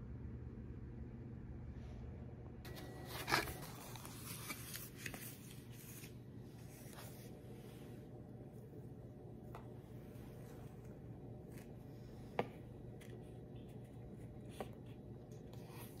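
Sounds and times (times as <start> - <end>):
paper plate rustling: 2.7 - 8.7.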